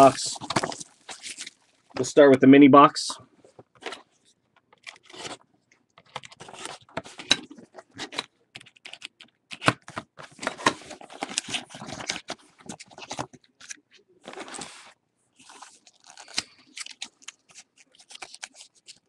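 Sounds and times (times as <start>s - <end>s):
pack wrappers rustling: 0.0s - 2.1s, 10.9s - 19.0s.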